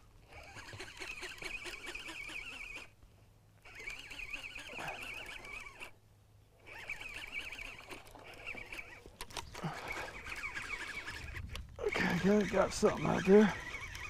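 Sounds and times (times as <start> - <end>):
fishing reel squeaky whir: 0.0 - 3.0, 3.6 - 6.0, 6.6 - 14.0.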